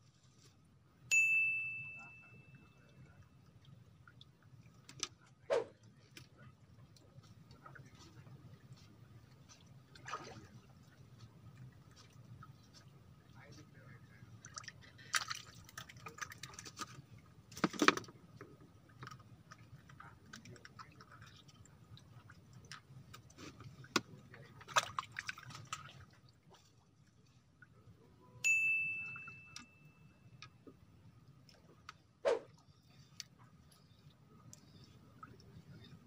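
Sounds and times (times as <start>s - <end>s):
bell-like ding: 1.1s - 2.8s, 28.4s - 30.1s.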